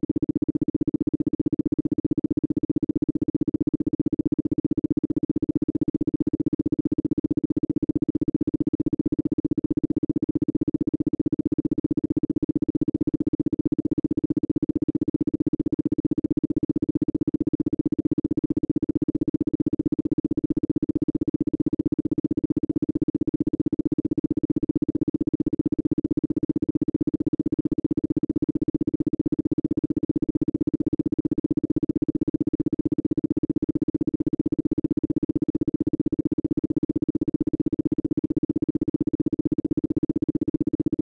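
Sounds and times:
pulsing steady tone: 20.6 - 41.0.

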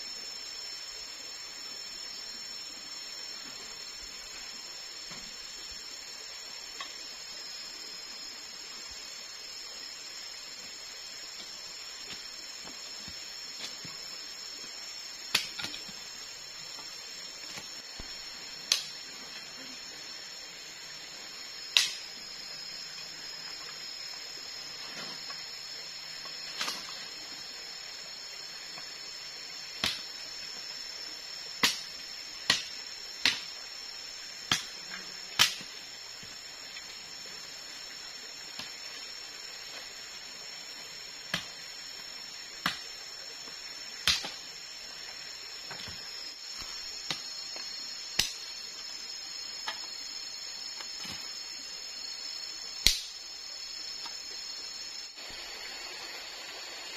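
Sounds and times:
forest insects droning: 0.0 - 56.9
machete chopping wooden stick: 15.3 - 15.9, 21.8 - 22.0, 29.8 - 30.0, 31.6 - 31.9, 32.5 - 33.5, 34.5 - 34.8, 35.4 - 35.7, 42.6 - 42.8, 44.0 - 44.4, 48.2 - 48.4, 52.8 - 53.2.

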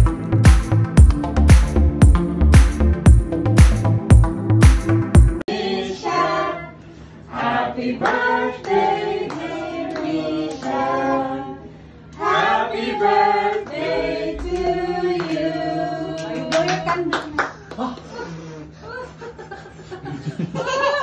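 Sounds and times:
group of people singing: 5.5 - 17.1.

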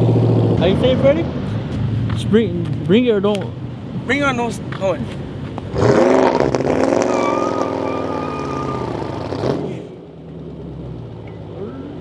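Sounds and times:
car engine revving: 5.6 - 12.0
tyres squealing: 6.9 - 9.2.

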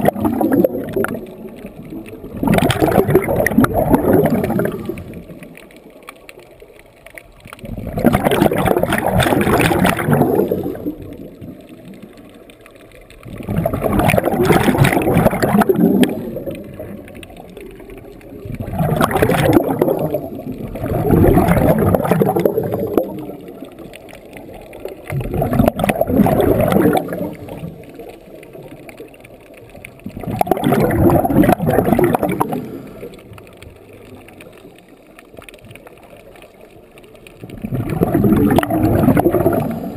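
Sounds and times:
exhaled bubbles gurgling: 0.0 - 39.9.

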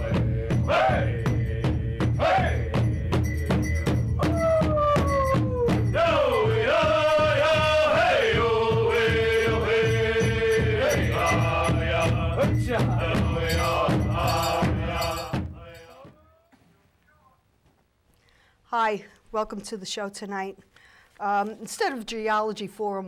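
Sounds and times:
singers chanting together: 0.0 - 3.3, 5.9 - 16.1
large drum beats: 0.0 - 16.1.

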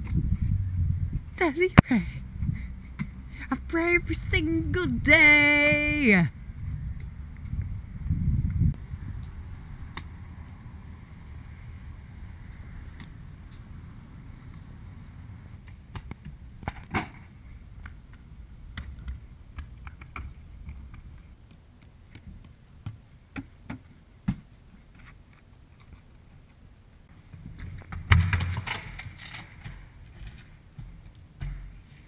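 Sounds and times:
low rumble: 0.0 - 1.4
hard landing thud: 27.9 - 29.2.

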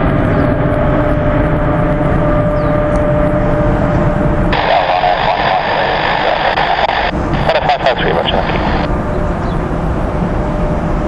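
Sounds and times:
jet engine rumble: 0.0 - 11.0
jet engine whine: 0.0 - 11.0
rough high jet noise: 0.0 - 11.0.

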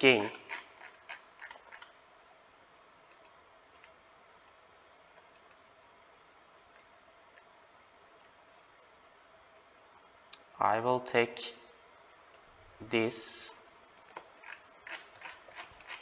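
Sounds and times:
faint clicks: 3.1 - 5.6.

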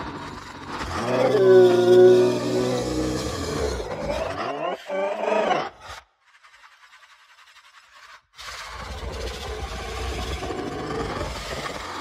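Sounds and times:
deep rumbling growl: 0.0 - 5.8, 8.8 - 12.0
monster roar: 0.8 - 5.8, 8.8 - 12.0.

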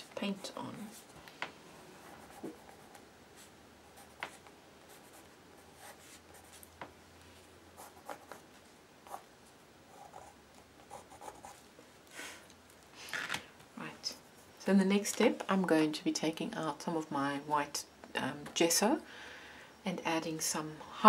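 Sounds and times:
pencil scratching on paper: 2.0 - 6.6, 9.9 - 11.6.

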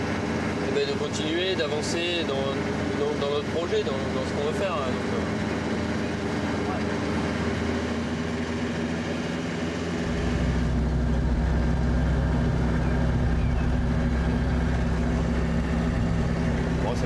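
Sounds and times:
engine and road drone: 0.0 - 17.0
truck engine running: 0.0 - 17.0.

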